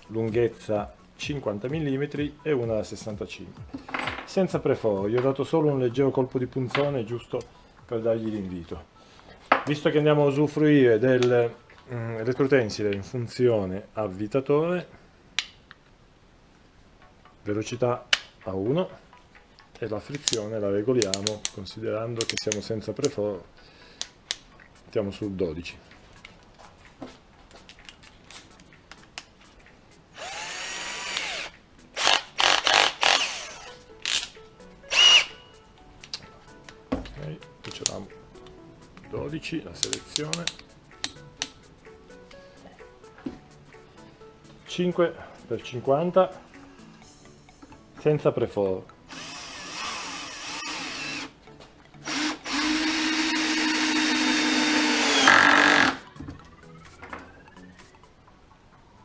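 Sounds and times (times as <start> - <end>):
cordless drill motor spinning: 30.1 - 34.3, 34.9 - 35.4, 49.1 - 51.4, 52.0 - 56.0
drill chuck rattling: 30.2 - 35.3, 49.1 - 51.3, 52.0 - 56.0.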